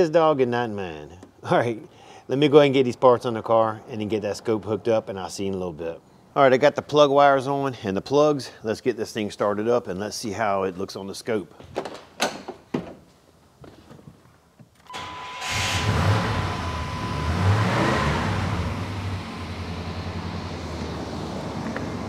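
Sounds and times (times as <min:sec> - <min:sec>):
engine cranking and starting: 0:14.9 - 0:20.3
engine revving and idling: 0:15.0 - 0:22.0.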